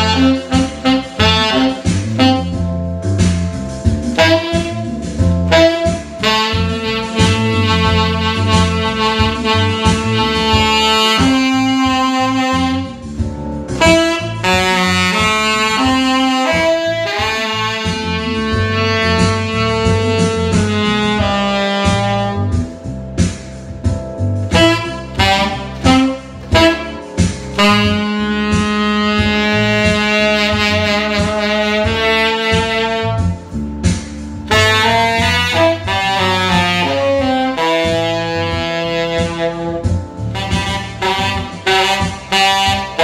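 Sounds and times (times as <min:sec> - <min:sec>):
backing track with bass line: 0:00.0 - 0:43.0
tenor saxophone playing jazz: 0:00.0 - 0:43.0.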